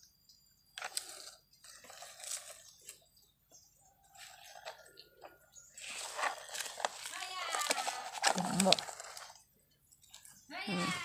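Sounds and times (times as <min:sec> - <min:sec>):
crunching on gravelly dirt: 0:03.8 - 0:09.5.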